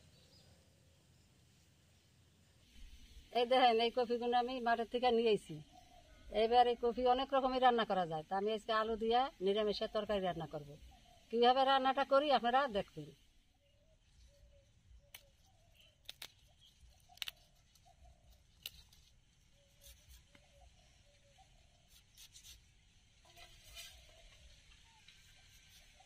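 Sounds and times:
cauliflower stalks snapping: 15.1 - 19.2.

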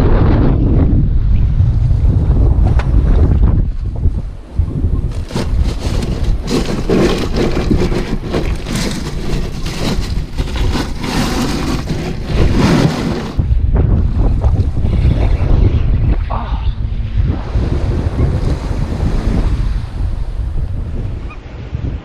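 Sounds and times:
wind buffeting microphone: 0.0 - 22.0
small surf: 5.0 - 13.5
ice and bottles clattering in cooler: 5.1 - 13.4.

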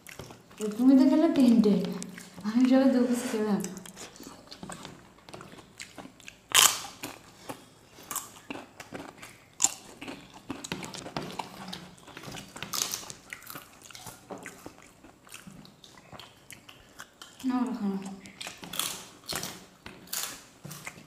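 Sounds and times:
soft chewing: 0.0 - 21.0
crisp wafer crunching: 18.4 - 21.0.

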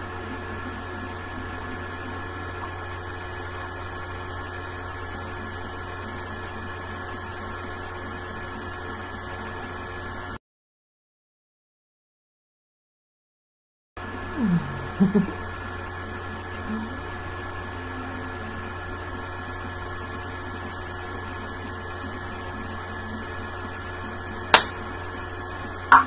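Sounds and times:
steady hum: 0.0 - 10.4, 14.0 - 26.0
woman humming: 14.1 - 15.6, 16.5 - 17.1.

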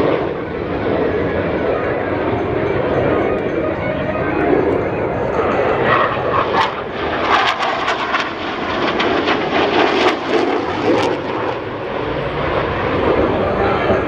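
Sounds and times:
jet engine roar with crackles: 0.0 - 14.0.

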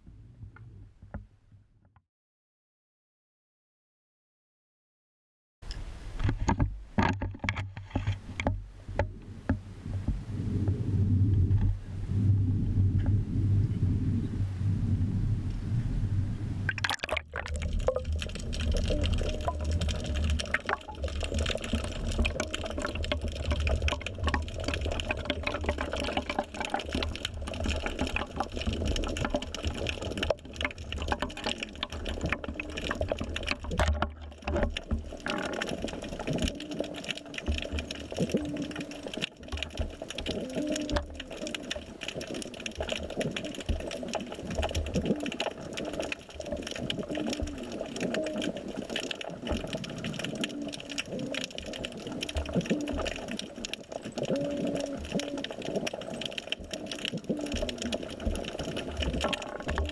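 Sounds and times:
crackle of small clicks: 5.6 - 11.8, 16.7 - 59.9
muffled underwater noise: 8.9 - 59.9
low rumble: 9.1 - 20.6.

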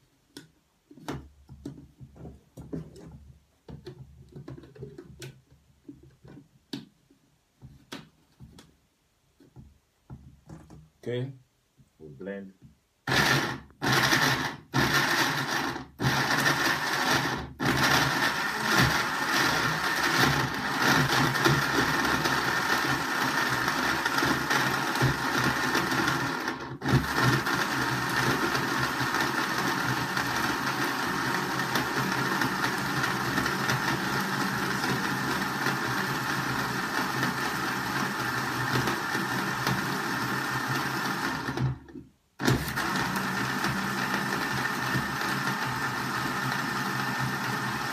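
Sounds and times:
blender grinding: 13.0 - 47.9.

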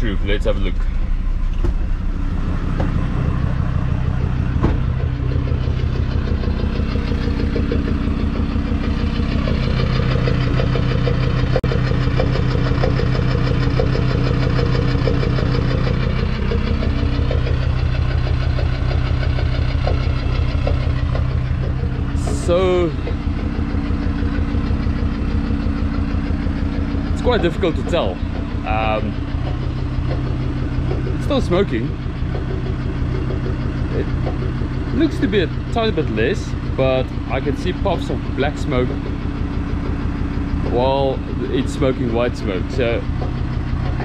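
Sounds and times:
diesel engine idling: 0.0 - 44.0.

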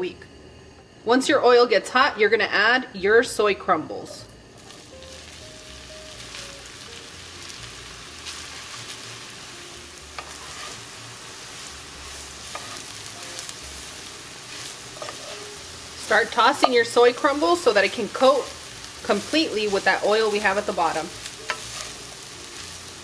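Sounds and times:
food sizzling in oil: 4.0 - 23.0
utensil tapping pan: 16.4 - 16.9, 21.4 - 22.0.

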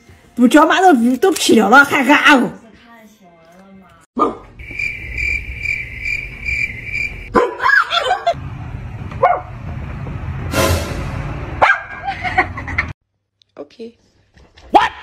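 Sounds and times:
dog barking: 4.2 - 4.5, 7.3 - 7.9, 9.2 - 9.5, 11.6 - 12.0
dog yelping: 7.3 - 8.0.

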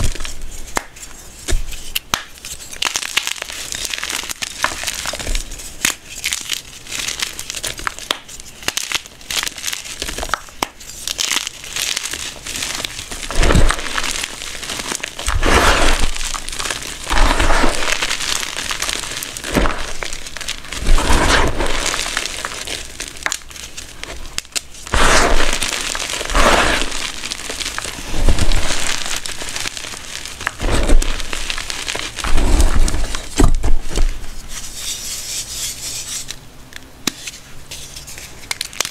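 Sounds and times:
chalk crunching by hand: 10.8 - 33.5.

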